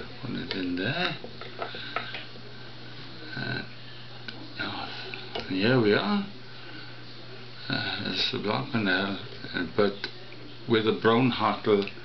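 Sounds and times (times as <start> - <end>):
low murmur of voice: 0.0 - 5.5
steady low hum: 0.0 - 12.0.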